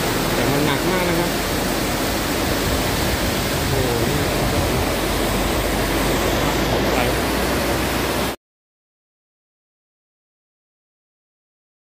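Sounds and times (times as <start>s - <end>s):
heavy driving rain: 0.0s - 8.4s
wind rushing: 1.4s - 8.4s.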